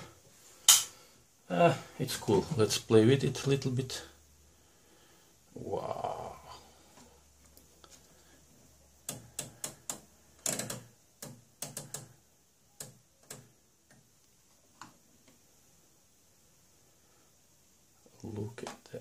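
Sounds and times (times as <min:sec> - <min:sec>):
rotary knobs clicking: 0:09.0 - 0:12.1.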